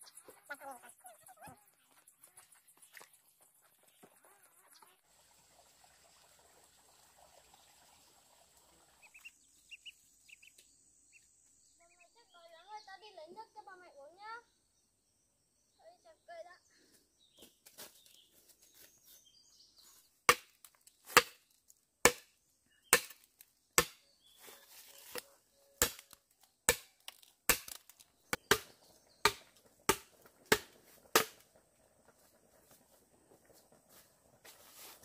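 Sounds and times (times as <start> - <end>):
machete chopping wood: 20.3 - 21.4, 22.0 - 22.3, 22.9 - 24.0, 25.8 - 31.4.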